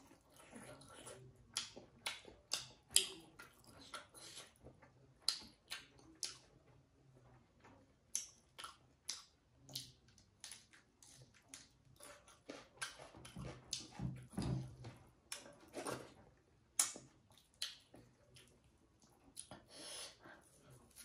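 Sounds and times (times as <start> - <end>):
wet chewing and lip smacks: 0.0 - 6.5, 8.1 - 13.9, 16.8 - 19.7.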